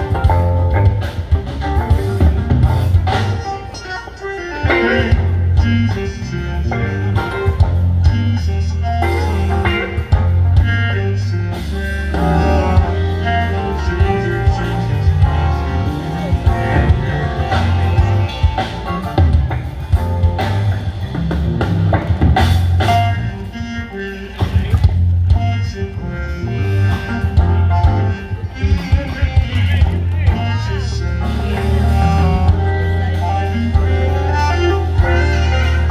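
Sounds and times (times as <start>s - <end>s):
bass guitar: 0.0s - 35.9s
drum kit beat: 0.0s - 35.9s
electric guitar: 0.0s - 35.9s
keyboards: 0.0s - 35.9s.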